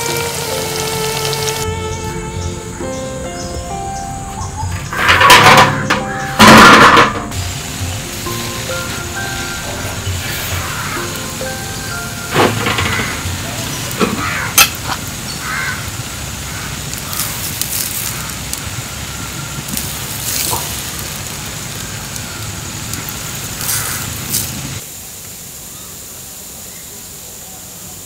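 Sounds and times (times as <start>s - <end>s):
steady hiss: 0.0s - 28.0s
wood fire crackling and popping: 12.3s - 24.8s.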